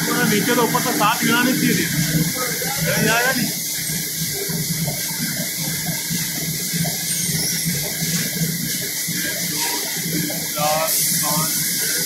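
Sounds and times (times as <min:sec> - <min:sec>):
forklift hiss: 0:10.5 - 0:12.0.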